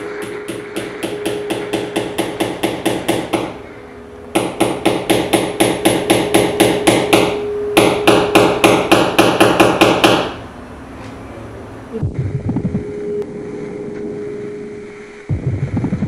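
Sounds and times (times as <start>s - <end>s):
rapid knocking: 0.0s - 3.6s
faint steady hum: 0.0s - 16.0s.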